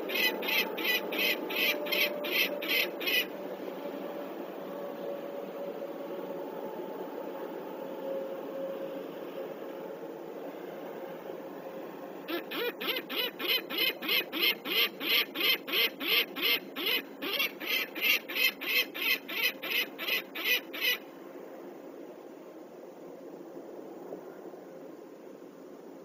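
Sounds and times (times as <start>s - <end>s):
falcon alarm calls: 0.0s - 3.3s, 12.3s - 21.0s.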